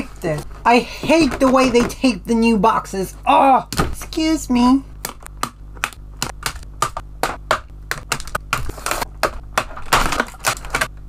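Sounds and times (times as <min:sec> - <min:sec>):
plastic rustling: 0:08.2 - 0:10.9.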